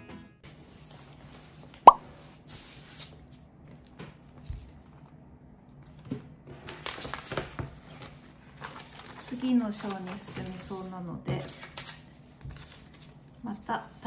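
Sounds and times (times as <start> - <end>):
book pages rustling: 6.7 - 10.6, 11.4 - 13.4.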